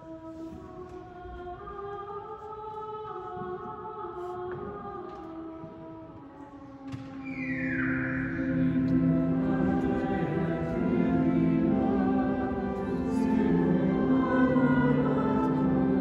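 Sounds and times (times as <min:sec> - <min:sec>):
choir singing long chords: 0:07.4 - 0:16.0.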